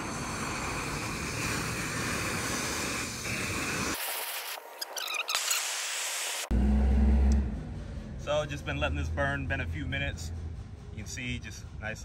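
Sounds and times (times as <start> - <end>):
gas torch hissing: 0.0 - 6.5.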